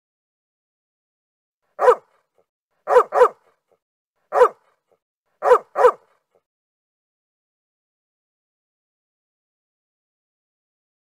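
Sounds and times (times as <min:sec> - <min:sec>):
dog barking: 0:01.8 - 0:02.2, 0:02.8 - 0:03.6, 0:04.3 - 0:04.8, 0:05.4 - 0:06.3.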